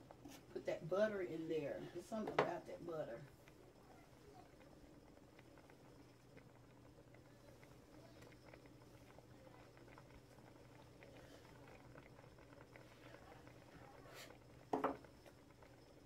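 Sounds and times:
pot simmering softly: 0.0 - 16.0
bubbling pops and ticks: 4.4 - 13.8.

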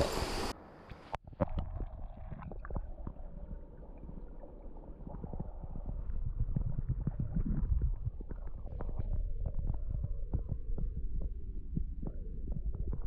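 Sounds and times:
hiss of moving water: 0.0 - 0.6
underwater creek gurgling: 0.0 - 13.0.

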